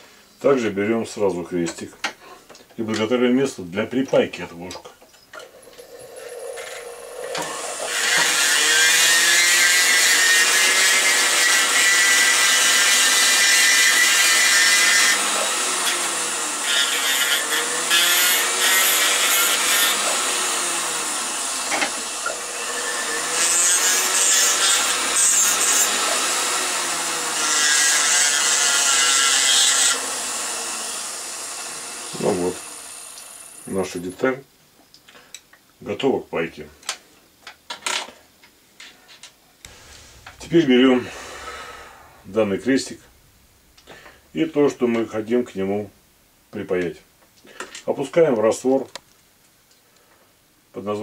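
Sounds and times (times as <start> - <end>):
rotary tool grinding metal: 5.4 - 33.7.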